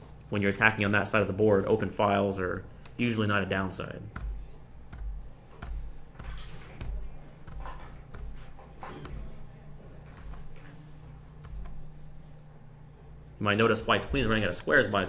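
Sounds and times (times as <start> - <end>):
steady low hum: 0.0 - 15.0
computer key clicks: 4.2 - 8.4, 10.1 - 10.7.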